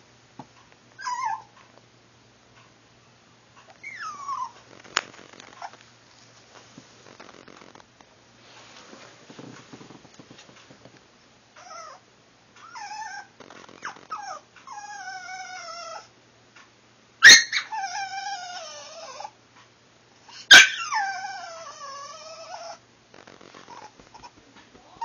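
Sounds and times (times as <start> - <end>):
puppy whining: 1.0 - 1.6, 3.7 - 5.8, 11.6 - 16.1, 17.2 - 19.4, 20.3 - 25.0
puppy yelping: 1.0 - 1.6, 3.8 - 4.7, 5.5 - 5.8, 11.6 - 12.0, 12.6 - 16.1, 17.2 - 19.4, 20.4 - 22.8, 23.6 - 25.0.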